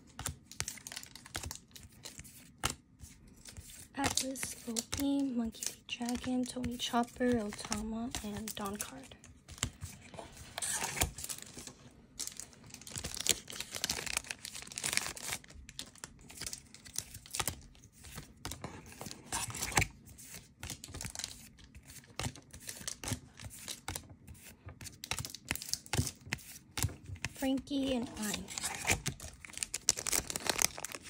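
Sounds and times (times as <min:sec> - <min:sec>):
foil pack crinkling and tearing: 0:00.2 - 0:02.5, 0:10.5 - 0:24.0, 0:24.8 - 0:31.0.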